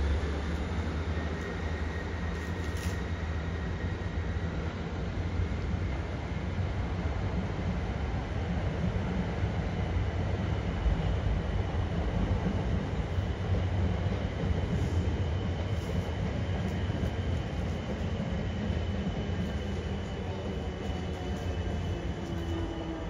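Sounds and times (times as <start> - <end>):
train wheels rumbling: 0.0 - 4.6, 10.8 - 23.0
faint high whine: 12.8 - 23.0.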